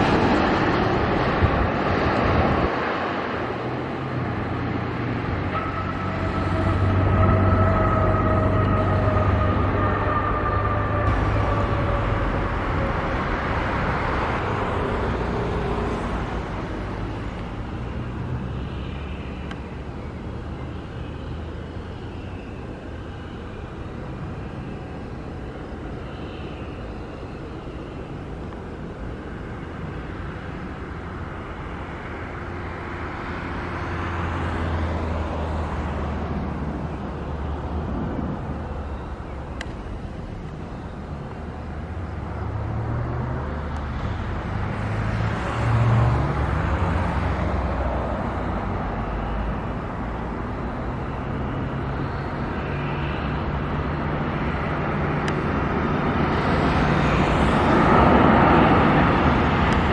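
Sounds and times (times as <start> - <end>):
low jet rumble: 0.0 - 33.8
jet airliner passing: 0.0 - 59.9
jet approaching: 0.0 - 59.9.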